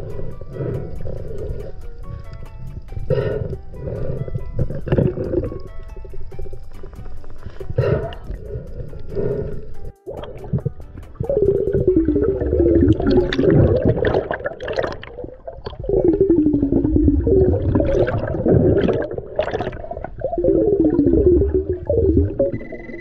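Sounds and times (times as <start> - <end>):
bubbles gurgling underwater: 0.0 - 6.9, 10.1 - 22.8
diver breathing through regulator: 0.0 - 10.0.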